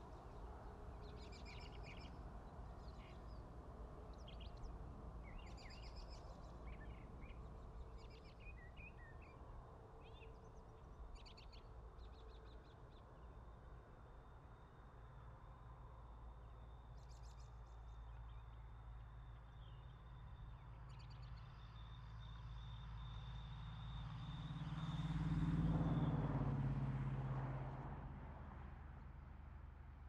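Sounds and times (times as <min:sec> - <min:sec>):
vehicle passing by: 0:24.4 - 0:29.4.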